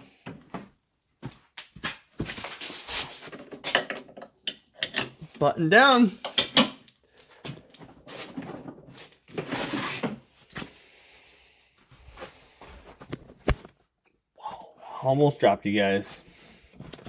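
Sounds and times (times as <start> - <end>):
footsteps on concrete floor: 0.6 - 3.1, 10.4 - 10.8, 11.8 - 13.7.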